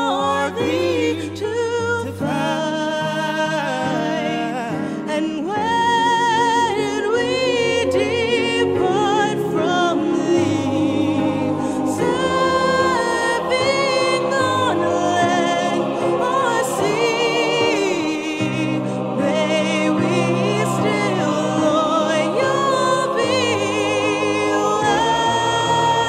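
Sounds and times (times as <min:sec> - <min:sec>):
choir singing slow held notes: 0:05.6 - 0:26.0.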